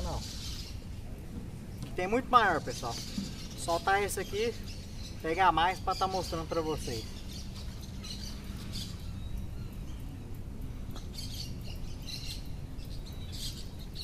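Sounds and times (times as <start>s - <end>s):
birds chirping: 0.0s - 14.0s
low background noise: 0.0s - 14.0s.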